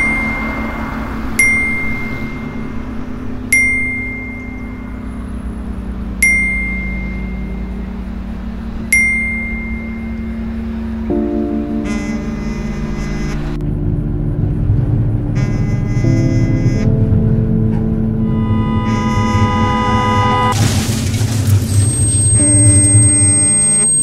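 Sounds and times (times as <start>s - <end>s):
deep sustained tone: 0.0s - 24.0s
steady low hum: 0.0s - 24.0s
notification chime dings: 3.5s - 4.8s.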